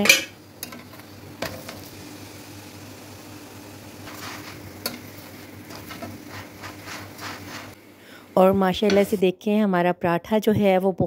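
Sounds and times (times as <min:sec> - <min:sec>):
flatbread sizzling on a pan: 0:00.2 - 0:07.8
spatula scraping a pan: 0:04.0 - 0:07.8.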